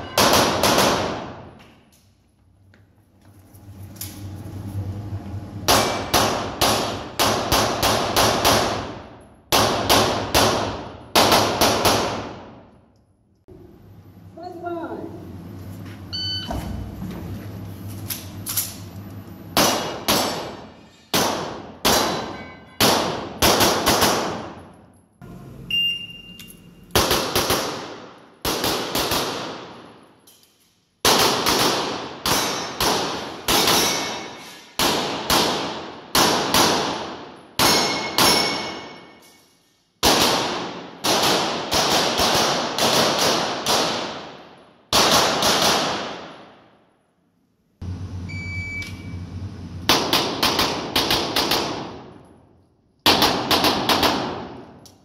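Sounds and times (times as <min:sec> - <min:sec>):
pistol shots echoing indoors: 0:00.0 - 0:01.9, 0:05.7 - 0:13.0, 0:19.5 - 0:25.0, 0:26.9 - 0:47.2, 0:49.9 - 0:55.0.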